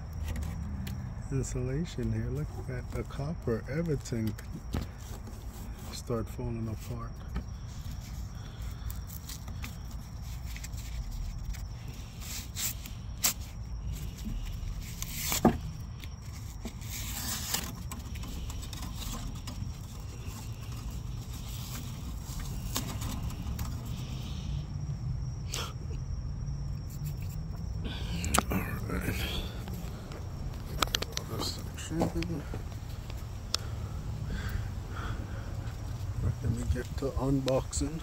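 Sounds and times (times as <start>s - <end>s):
steady low rumble: 18.0s - 38.0s.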